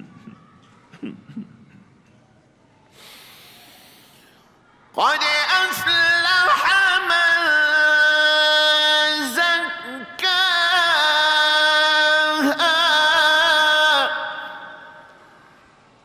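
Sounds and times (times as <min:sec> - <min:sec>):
man reciting melodically: 0:05.0 - 0:15.3.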